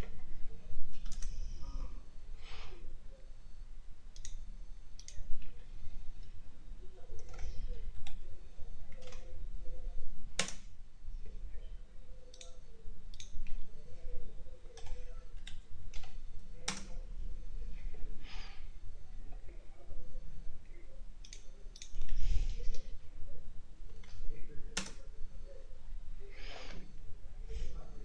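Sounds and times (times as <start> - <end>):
steady low hum: 0.0 - 28.0
computer mouse and keyboard clicks: 0.9 - 1.8, 4.1 - 5.6, 8.9 - 9.4, 10.4 - 10.7, 12.3 - 13.6.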